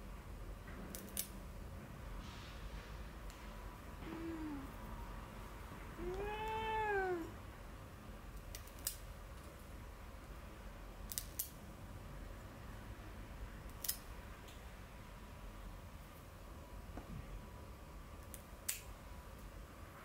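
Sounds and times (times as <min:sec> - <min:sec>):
cat meowing: 0:04.0 - 0:04.7, 0:06.0 - 0:07.4.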